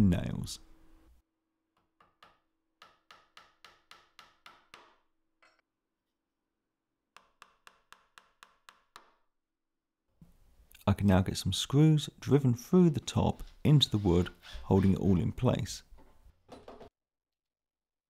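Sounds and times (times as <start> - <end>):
small hammer tapping nails: 1.8 - 5.0, 7.2 - 9.2.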